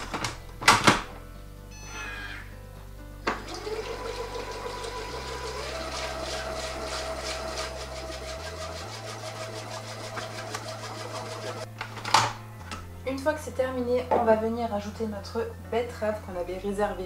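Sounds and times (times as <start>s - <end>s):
food processor motor whining: 3.3s - 11.7s.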